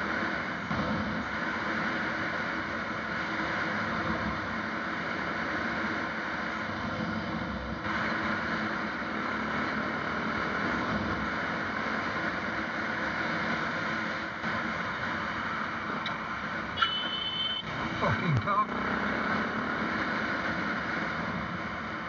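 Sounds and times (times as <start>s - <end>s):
vehicle engine and road noise: 0.0s - 22.0s.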